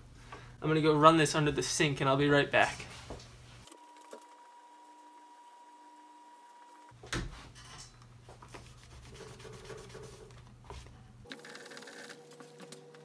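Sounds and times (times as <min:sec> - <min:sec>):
sponge scrubbing a door panel: 0:08.7 - 0:10.3.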